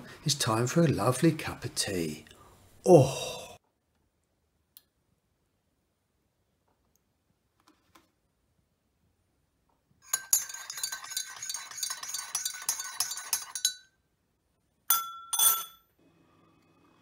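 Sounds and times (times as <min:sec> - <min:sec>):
teaspoon clinking in mug: 0:10.1 - 0:14.0, 0:14.9 - 0:15.8.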